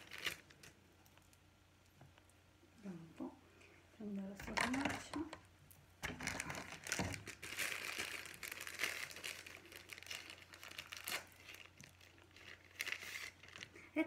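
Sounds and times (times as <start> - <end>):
plastic packet crinkling: 0.0 - 1.4, 6.0 - 14.0.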